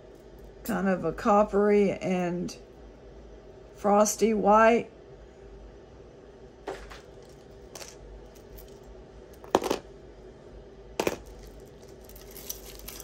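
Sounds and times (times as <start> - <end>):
jewelry clinking: 6.9 - 9.8, 11.0 - 13.0.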